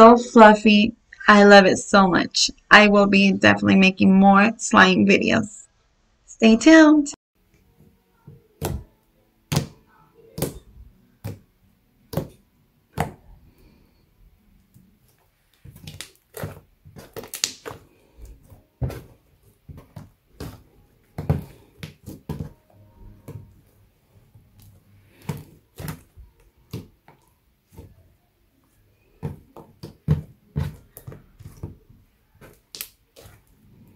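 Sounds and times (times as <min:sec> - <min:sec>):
slime squelching pops: 0:15.6 - 0:17.9.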